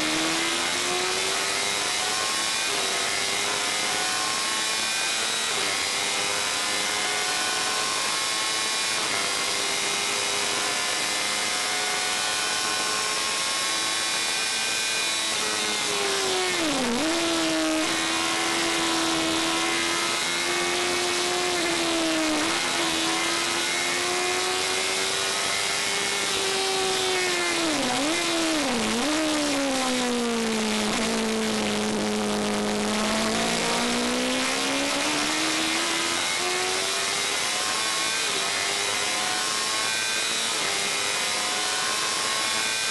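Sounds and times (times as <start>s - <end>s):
race car engine revving: 0.0s - 42.9s.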